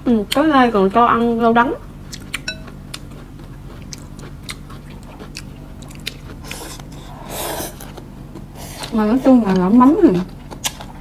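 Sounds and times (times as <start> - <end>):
chewing noodles: 2.1 - 11.0
utensil clinking against bowl: 2.4 - 2.8.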